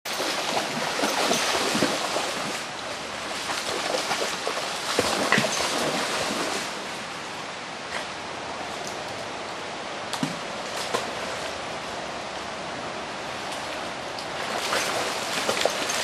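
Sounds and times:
dog splashing in water: 0.1 - 2.6, 3.3 - 6.7, 14.4 - 16.0
rushing river water: 0.1 - 16.0.

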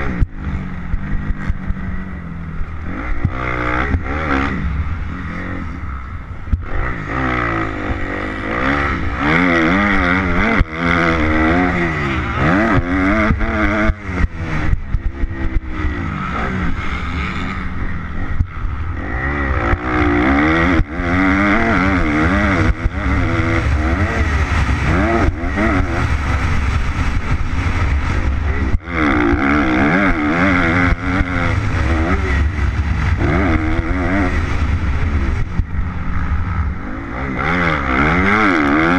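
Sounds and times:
motocross engine revving: 0.0 - 38.9
wind buffeting microphone: 17.6 - 37.8.

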